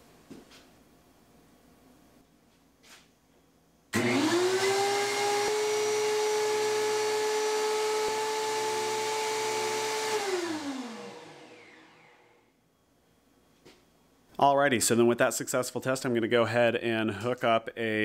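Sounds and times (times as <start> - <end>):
thickness planer whining: 4.0 - 12.4.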